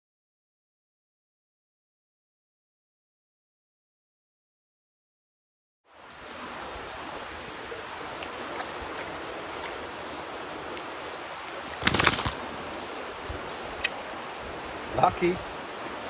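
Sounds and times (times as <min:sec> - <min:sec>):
steady outdoor hiss: 0:05.9 - 0:16.0
fish flopping on leaves: 0:11.6 - 0:12.6.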